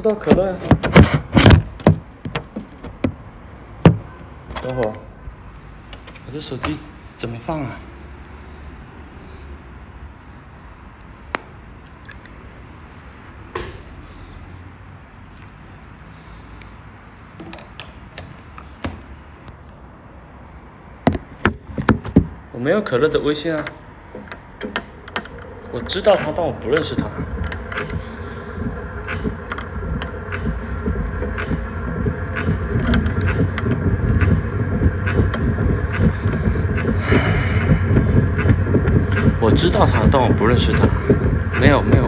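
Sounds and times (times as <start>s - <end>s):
sharp knocks: 0.3s - 3.2s, 3.8s - 4.2s, 21.0s - 22.4s, 24.1s - 42.0s
low steady hum: 24.1s - 42.0s
low rumble: 25.2s - 42.0s.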